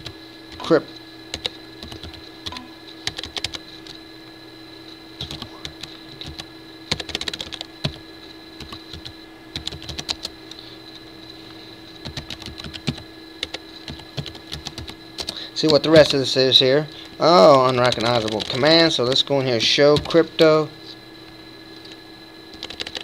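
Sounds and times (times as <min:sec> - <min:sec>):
faint hum: 0:00.0 - 0:23.0
keyboard typing: 0:01.3 - 0:04.0, 0:05.2 - 0:08.0, 0:08.6 - 0:10.6, 0:12.0 - 0:16.2, 0:17.0 - 0:19.2, 0:19.9 - 0:20.2, 0:22.5 - 0:23.0.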